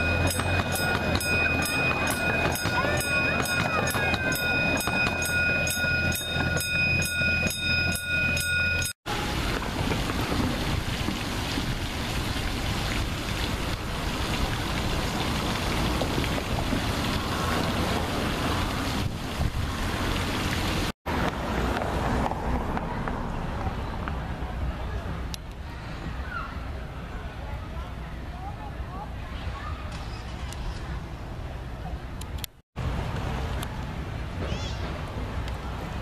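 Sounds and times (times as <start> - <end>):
high-pitched ringing tones: 0.0 - 9.0
train wheels ticking on rails: 0.0 - 9.0
fountain water spraying: 9.1 - 21.7.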